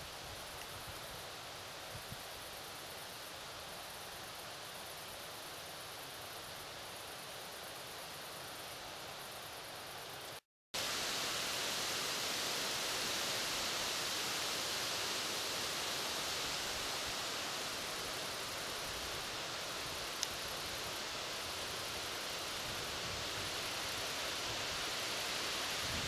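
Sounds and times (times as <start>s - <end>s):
wind rushing through foliage: 0.0s - 26.0s
faint click: 20.2s - 20.4s.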